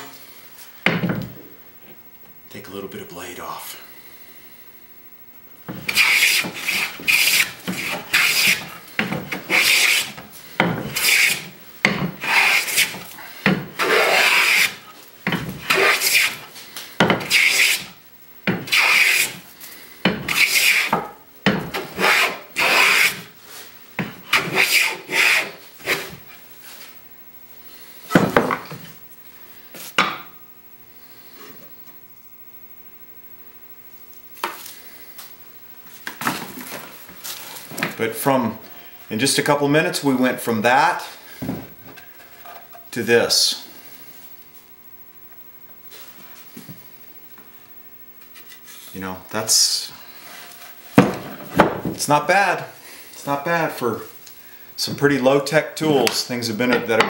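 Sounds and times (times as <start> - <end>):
hand plane strokes on wood: 5.8 - 19.4, 20.0 - 21.1, 21.7 - 26.2.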